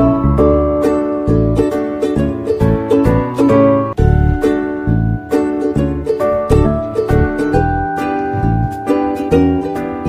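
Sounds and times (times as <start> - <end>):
plucked-string tune: 0.0 - 10.0
steady bass beat: 4.0 - 9.7.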